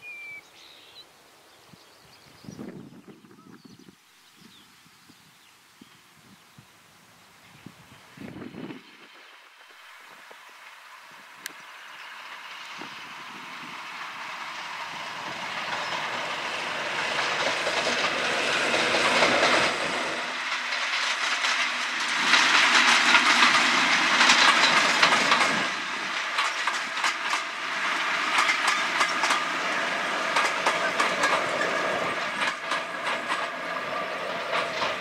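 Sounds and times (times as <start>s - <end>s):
diesel locomotive engine: 6.8s - 35.0s
train wheels clicking over rail joints: 8.4s - 35.0s.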